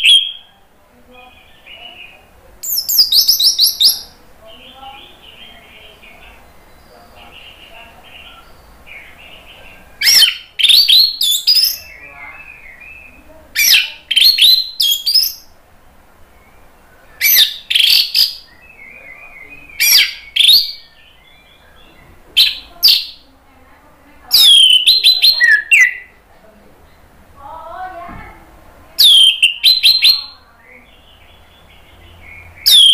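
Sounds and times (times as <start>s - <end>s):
soft bird chirping: 0.0s - 32.9s
thrush whistled song: 29.0s - 30.2s, 32.4s - 32.9s.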